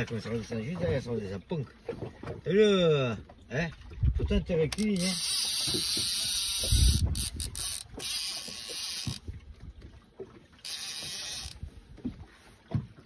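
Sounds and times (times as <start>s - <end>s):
fishing reel drag buzzing: 4.7s - 9.3s, 10.6s - 11.7s.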